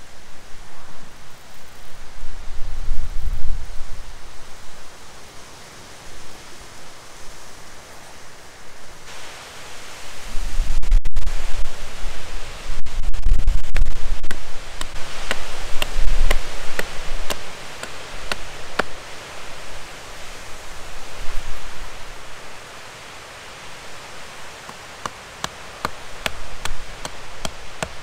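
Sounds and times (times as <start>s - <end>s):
steady hiss: 0.0s - 28.0s
low rumbling gusts: 9.2s - 28.0s
knife carving wood clicks: 14.8s - 18.9s, 24.7s - 28.0s.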